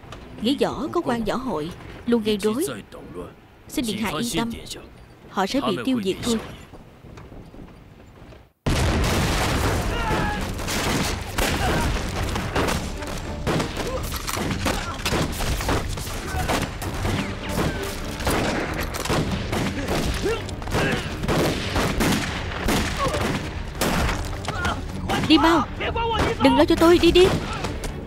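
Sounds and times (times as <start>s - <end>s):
explosion booms: 8.6s - 12.9s
rapid gunfire: 9.0s - 24.2s.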